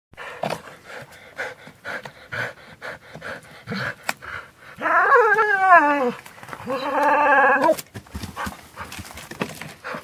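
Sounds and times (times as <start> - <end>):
dog panting: 0.2 - 4.8, 9.8 - 10.0.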